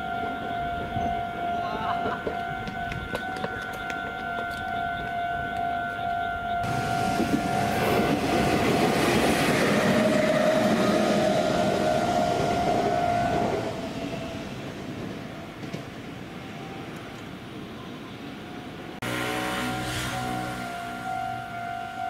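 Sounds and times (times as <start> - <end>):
electronic crossing warning bell: 0.0 - 13.8, 19.0 - 22.0
train wheels rumbling on rails: 0.0 - 17.8.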